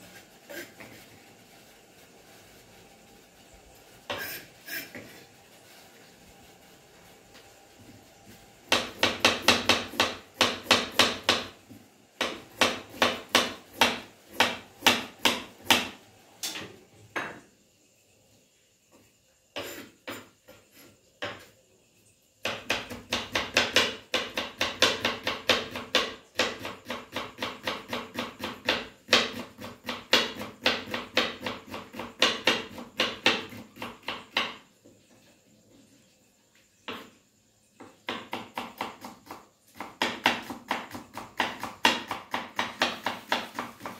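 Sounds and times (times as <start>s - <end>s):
knife chopping on wooden board: 8.7s - 11.6s, 12.2s - 16.0s, 22.4s - 34.6s, 37.8s - 43.9s.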